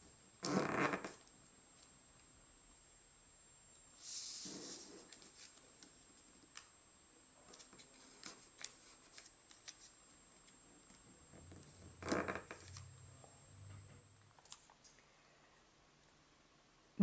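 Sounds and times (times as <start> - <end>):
paper rustling: 7.5 - 10.0
paper crinkle: 7.5 - 10.6.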